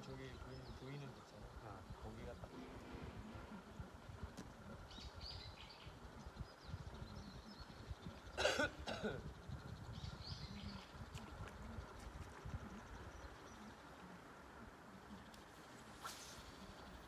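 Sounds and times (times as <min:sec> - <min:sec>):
faint bird chirps: 0:00.0 - 0:08.4, 0:09.1 - 0:17.0
low outdoor background: 0:00.0 - 0:17.0
person coughing: 0:08.4 - 0:09.2.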